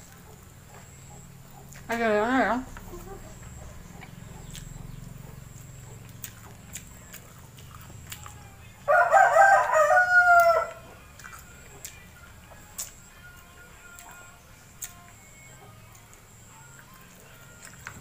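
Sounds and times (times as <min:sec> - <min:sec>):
faint eating clicks: 0:00.0 - 0:08.8, 0:09.6 - 0:18.0
rooster crowing: 0:08.4 - 0:11.1.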